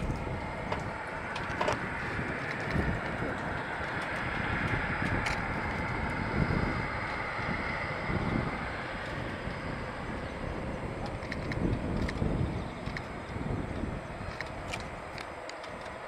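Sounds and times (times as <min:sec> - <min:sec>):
distant jet engine hiss: 0:00.0 - 0:16.0
wind on microphone: 0:00.0 - 0:16.0.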